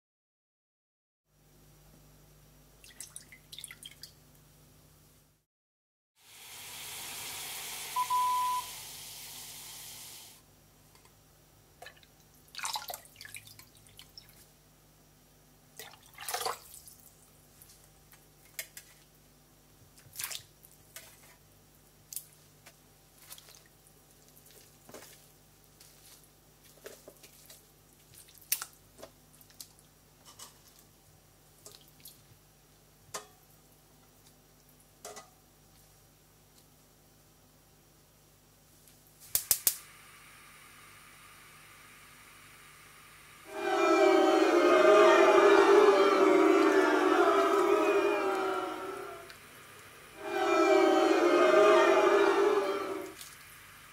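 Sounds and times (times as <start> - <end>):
pan hissing on hob: 6.3 - 10.4
short high beep: 8.0 - 8.8.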